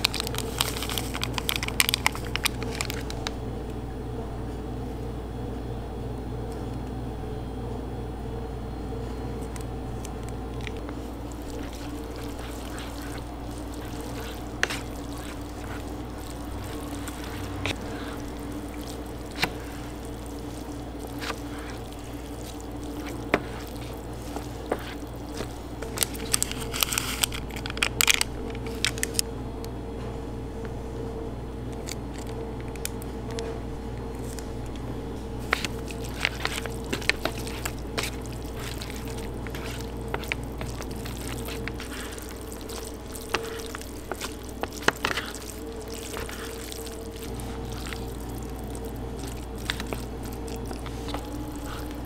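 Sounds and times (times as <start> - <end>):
seasoning packet crinkling: 0.0 - 3.4, 10.0 - 29.2, 35.4 - 52.0
steady machine hum: 0.0 - 52.0.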